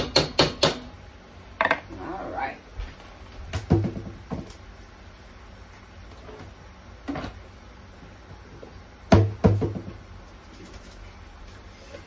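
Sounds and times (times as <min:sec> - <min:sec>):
kitchen things knocking: 0:03.6 - 0:04.5.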